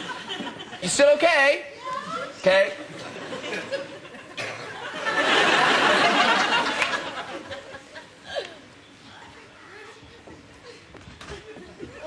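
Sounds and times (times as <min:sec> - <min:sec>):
studio audience laughing: 0:02.9 - 0:08.2.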